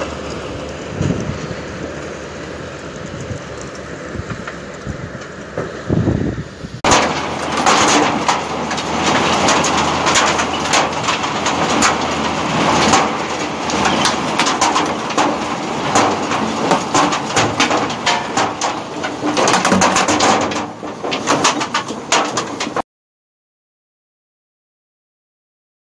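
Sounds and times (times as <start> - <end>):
potatoes rattling on machinery: 6.8 - 22.8.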